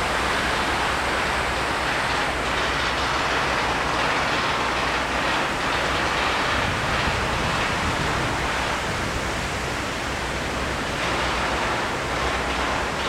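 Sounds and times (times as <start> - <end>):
water cascading down walls: 0.0 - 13.0.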